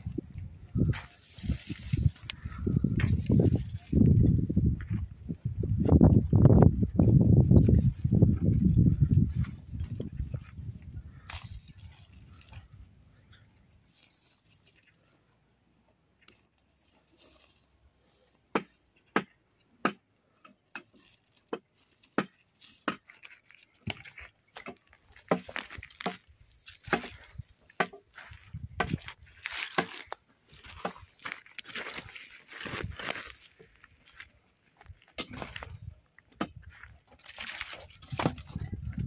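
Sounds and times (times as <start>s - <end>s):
brush crackling and rustling: 0.8s - 5.0s, 11.1s - 12.8s, 13.8s - 15.2s, 16.2s - 19.4s, 20.7s - 35.9s, 36.7s - 38.8s
dry brushwood snapping: 0.9s - 4.0s, 20.7s - 28.0s, 28.8s - 32.4s, 35.1s - 38.7s.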